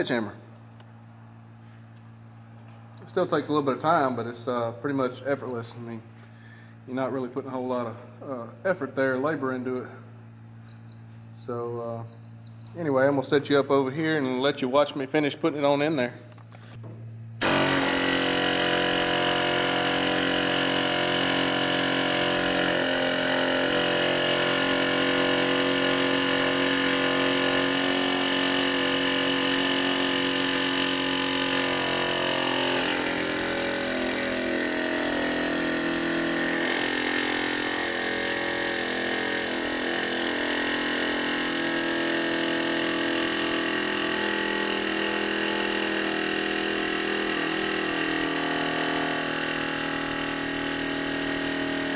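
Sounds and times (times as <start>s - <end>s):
pneumatic air hammer running: 16.4s - 51.9s.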